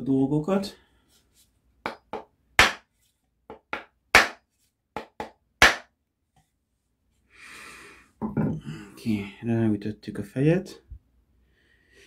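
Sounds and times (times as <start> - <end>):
axe knocking on wooden block: 1.9 - 2.8, 3.5 - 4.4, 5.0 - 5.9.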